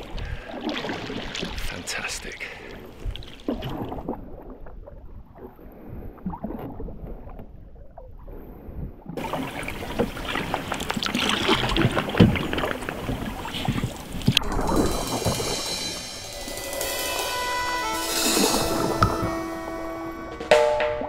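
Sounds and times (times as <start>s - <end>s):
water drips and splashes: 0.0s - 4.6s, 9.2s - 15.4s
canoe paddle dipping in water: 0.0s - 7.4s, 9.2s - 15.4s.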